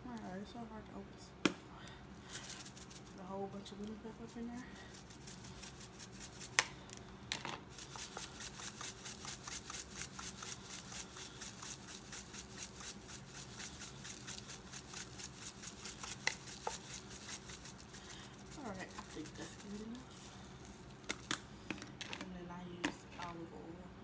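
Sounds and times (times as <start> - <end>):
seasoning rattling in shaker bottle: 2.3 - 6.9, 7.6 - 21.9.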